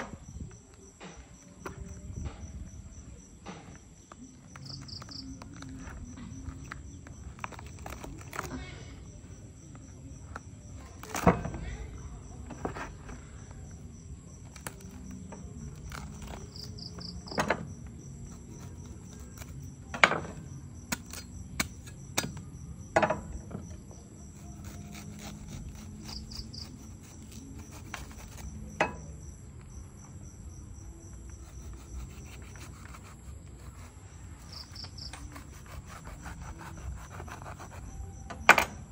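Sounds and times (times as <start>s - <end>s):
insects chirping: 0.0s - 38.9s
husk cracking on wooden board: 3.6s - 8.6s, 14.4s - 17.7s.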